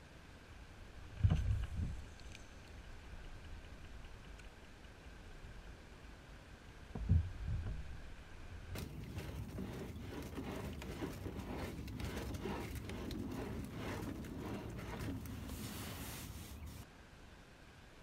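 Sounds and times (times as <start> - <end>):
dull thumps: 8.8 - 16.8.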